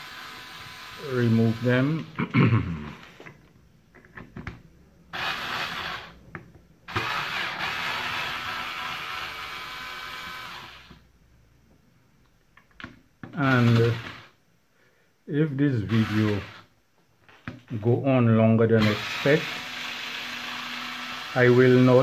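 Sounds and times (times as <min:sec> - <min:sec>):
electric screwdriver running: 0:00.0 - 0:02.0, 0:05.2 - 0:06.1, 0:06.9 - 0:11.0, 0:13.4 - 0:14.3, 0:15.8 - 0:16.6, 0:18.8 - 0:22.0.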